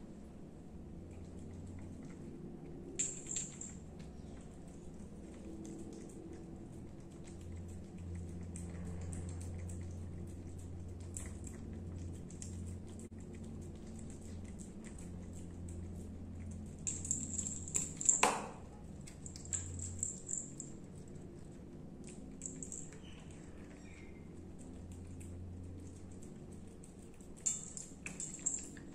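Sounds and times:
cat licking and chewing food: 0:00.0 - 0:28.9
low steady hum: 0:00.0 - 0:28.9
collar bell jingling: 0:03.0 - 0:04.0, 0:16.8 - 0:18.3, 0:19.1 - 0:21.1, 0:22.4 - 0:23.2, 0:27.4 - 0:28.9.

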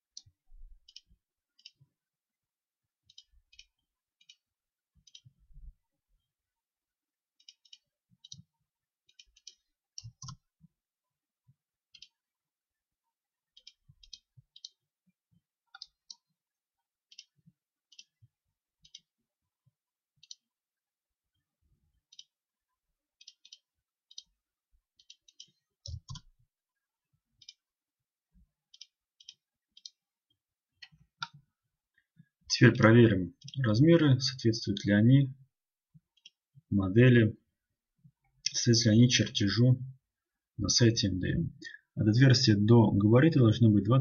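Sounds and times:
computer mouse clicking: 0:07.4 - 0:08.5, 0:09.1 - 0:10.4, 0:15.7 - 0:16.2, 0:25.0 - 0:26.3, 0:27.4 - 0:27.6, 0:28.7 - 0:30.0.

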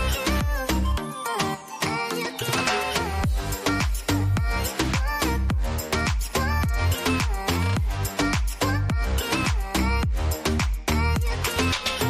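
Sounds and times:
dance music with beat: 0:00.0 - 0:12.0.

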